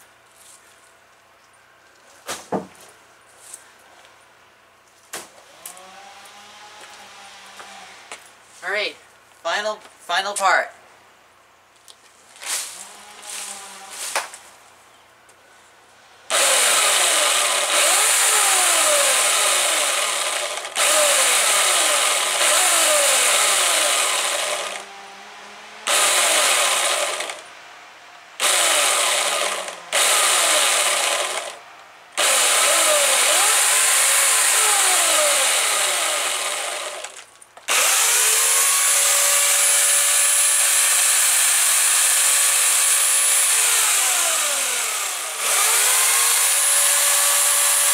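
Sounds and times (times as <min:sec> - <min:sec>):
chainsaw cutting leafy branches: 0:05.2 - 0:08.2, 0:12.4 - 0:14.5, 0:16.3 - 0:27.5, 0:28.4 - 0:31.6, 0:32.2 - 0:47.9
electric chainsaw whine: 0:05.3 - 0:08.3, 0:12.7 - 0:14.5, 0:16.2 - 0:47.9.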